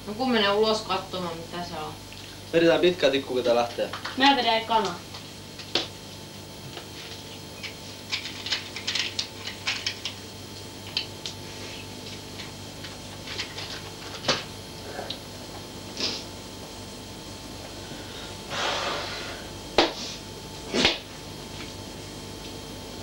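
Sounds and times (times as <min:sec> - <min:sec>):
steady electrical hum: 0:00.0 - 0:23.0.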